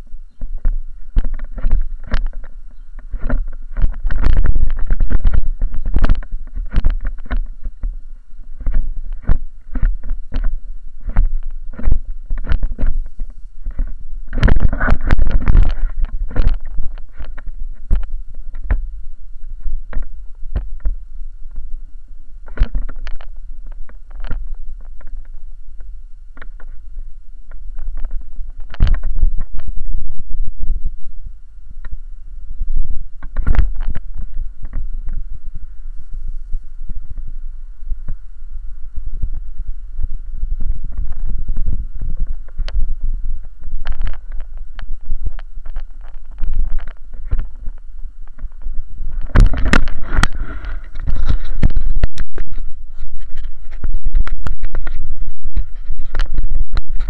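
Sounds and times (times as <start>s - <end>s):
camera pole knocking and rattling: 48.3s - 52.6s.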